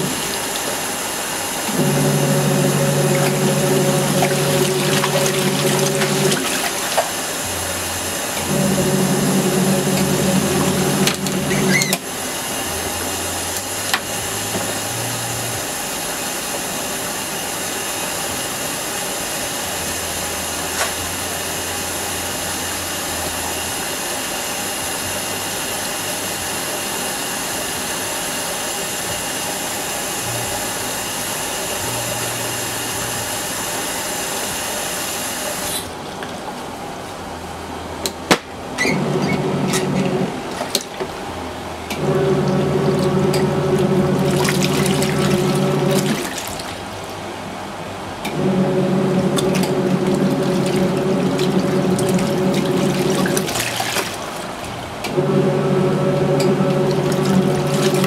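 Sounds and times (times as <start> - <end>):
water churning and sloshing: 0.0 - 14.8, 35.6 - 37.7, 38.5 - 58.0
washing machine motor hum: 0.0 - 58.0.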